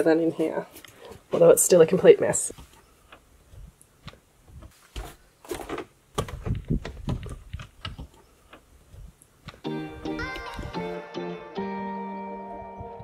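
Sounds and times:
knocks clicks and thuds of handling: 0:02.5 - 0:09.7.

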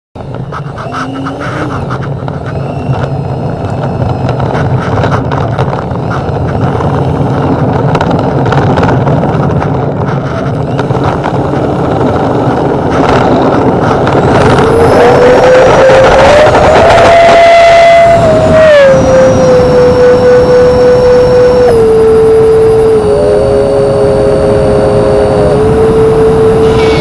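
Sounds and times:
electric ducted fans rattling: 0:00.2 - 0:27.0
fan whine: 0:00.2 - 0:27.0.

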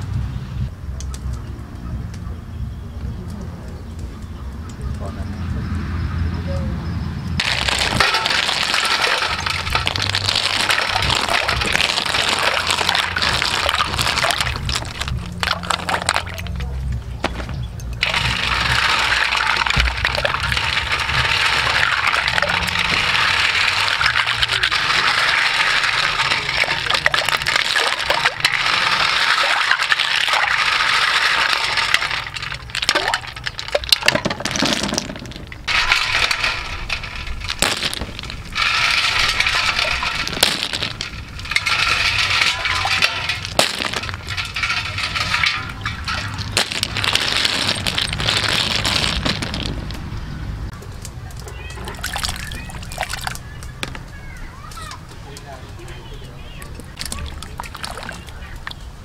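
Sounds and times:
water splashing in a bowl: 0:07.4 - 0:16.4, 0:18.0 - 0:49.6, 0:51.6 - 0:53.7, 0:56.8 - 0:58.8.

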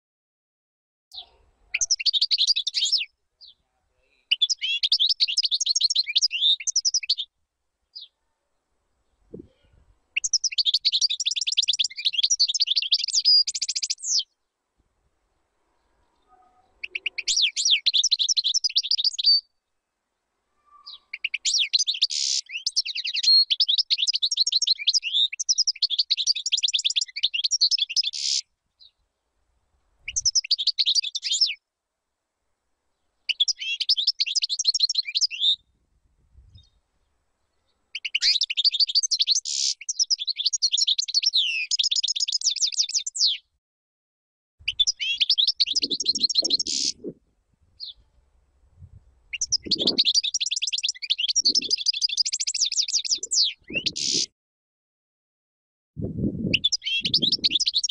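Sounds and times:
goldfinch singing: 0:01.2 - 0:03.6, 0:04.3 - 0:07.3, 0:10.2 - 0:14.3, 0:20.7 - 0:29.0, 0:30.1 - 0:31.6, 0:33.3 - 0:35.6, 0:37.9 - 0:43.4, 0:44.6 - 0:47.1, 0:49.3 - 0:54.3, 0:56.5 - 0:57.9.

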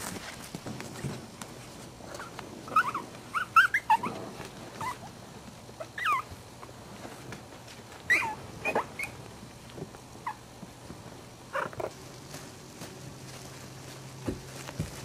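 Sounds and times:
puppies yipping and whimpering: 0:02.1 - 0:05.1, 0:05.8 - 0:06.4, 0:08.0 - 0:09.2
puppy squeaks: 0:02.2 - 0:04.2, 0:04.8 - 0:05.1, 0:05.8 - 0:06.3, 0:08.1 - 0:09.2.

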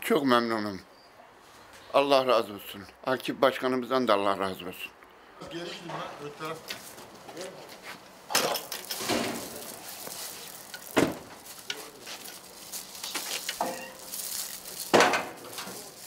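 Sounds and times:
crackly rustle: 0:06.4 - 0:16.0
wheelchair knocks and clatters: 0:08.3 - 0:09.8, 0:10.7 - 0:12.4, 0:14.8 - 0:15.9.

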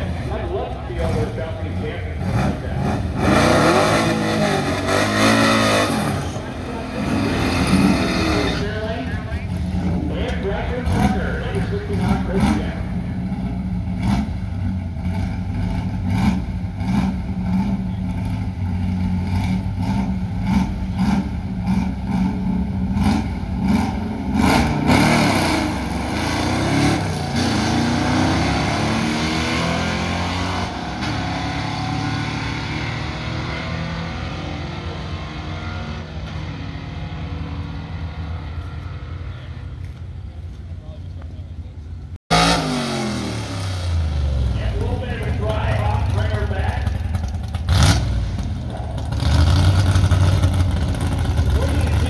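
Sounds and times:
drag car engines idling: 0:00.0 - 0:03.2, 0:06.0 - 0:24.4, 0:44.0 - 0:52.0
drag cars accelerating hard: 0:00.0 - 0:40.1, 0:42.3 - 0:52.0.

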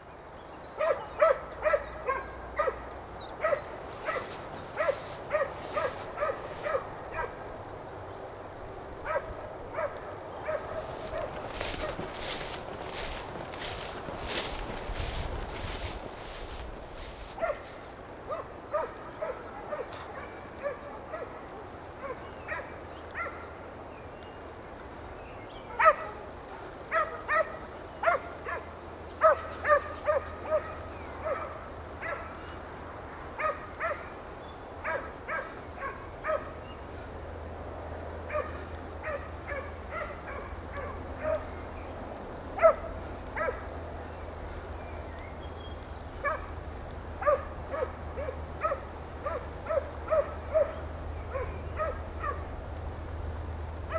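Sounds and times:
hound yelping barks: 0:00.8 - 0:02.8, 0:03.4 - 0:07.4, 0:17.0 - 0:17.7, 0:18.3 - 0:21.4, 0:29.2 - 0:32.2, 0:42.6 - 0:43.7, 0:47.2 - 0:52.4.

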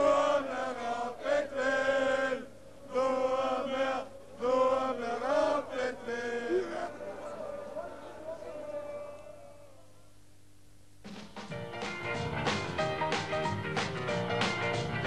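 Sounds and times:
football supporters chanting: 0:00.0 - 0:08.4.

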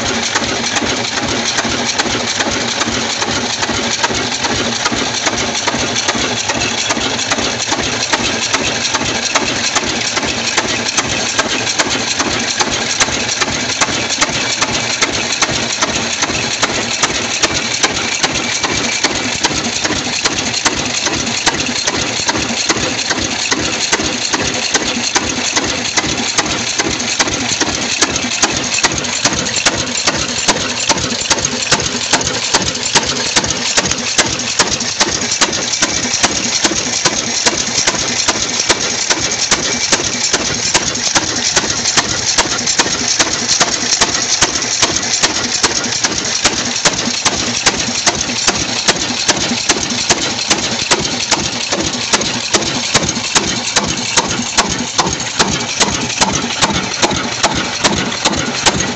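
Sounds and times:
stationary diesel engine running: 0:00.0 - 0:58.9.

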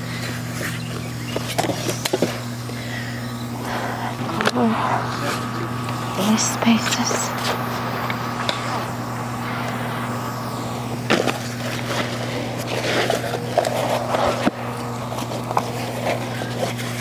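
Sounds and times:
steady low hum: 0:00.0 - 0:17.0
rubber liner rustling and scraping: 0:11.1 - 0:17.0.

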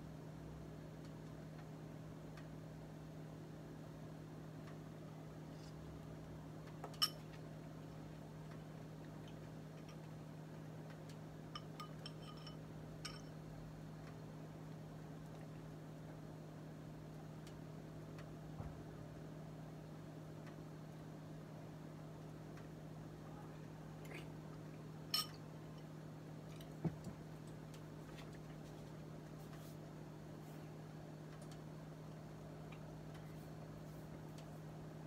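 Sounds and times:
steady low hum: 0:00.0 - 0:35.0
utensil clinking kitchenware: 0:25.1 - 0:25.4.

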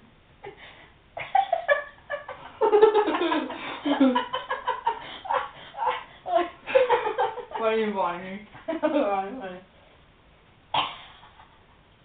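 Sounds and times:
people laughing: 0:01.2 - 0:07.6.

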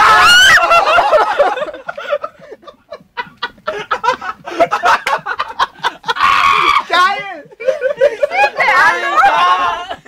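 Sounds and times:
people laughing in breathy bursts: 0:00.6 - 0:06.8, 0:07.5 - 0:08.7.

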